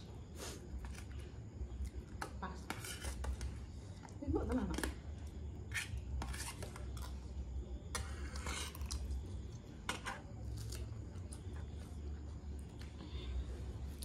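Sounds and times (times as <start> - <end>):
faint low hum: 0.0 - 14.0
cutlery scraping metal tray: 2.7 - 3.4, 5.7 - 6.8.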